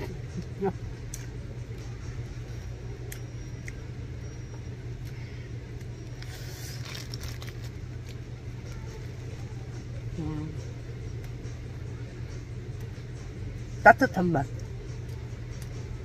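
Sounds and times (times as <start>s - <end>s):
steady low room hum: 0.0s - 16.0s
plastic wrapper rustling: 6.2s - 8.2s.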